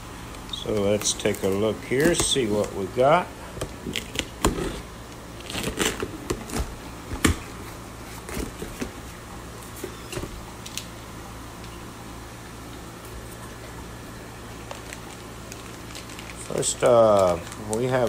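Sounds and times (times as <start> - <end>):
plastic bags rustling: 0.6 - 6.8, 14.4 - 18.0
knife slicing packing tape: 5.4 - 6.6.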